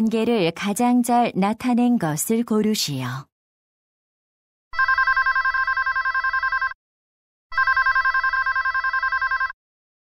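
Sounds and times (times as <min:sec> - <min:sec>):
telephone ringing: 0:04.8 - 0:06.8, 0:07.5 - 0:09.6.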